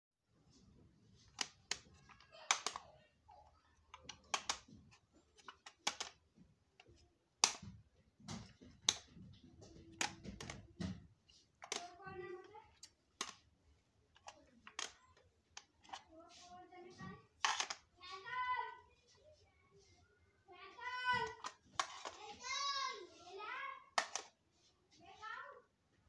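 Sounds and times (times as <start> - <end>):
plastic cassette cases clicking: 1.3 - 2.8, 3.9 - 4.8, 5.4 - 6.2, 6.8 - 7.7, 12.8 - 13.4, 14.2 - 16.0, 17.4 - 17.8, 21.2 - 22.2, 24.0 - 24.3.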